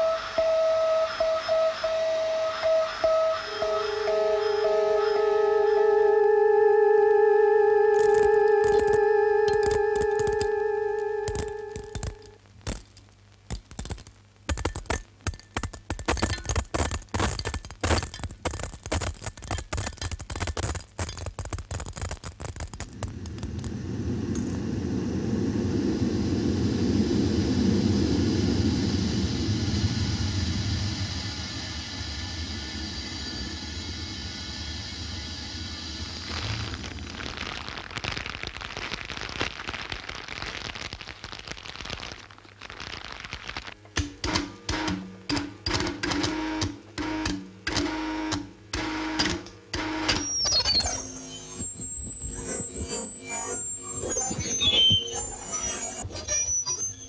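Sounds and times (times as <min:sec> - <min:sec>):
falling high whistle: 0:00.0 - 0:12.2, 0:50.1 - 0:57.0
faint steady high tones: 0:00.0 - 0:12.4, 0:49.6 - 0:57.0
machine-like electronic pulses: 0:00.0 - 0:12.4, 0:48.9 - 0:57.0
low rumbling drone: 0:23.1 - 0:37.0.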